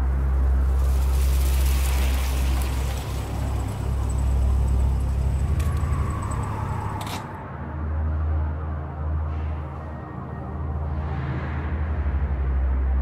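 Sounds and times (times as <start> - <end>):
deep rumbling drone: 0.0 - 13.0
hiss: 0.4 - 4.4.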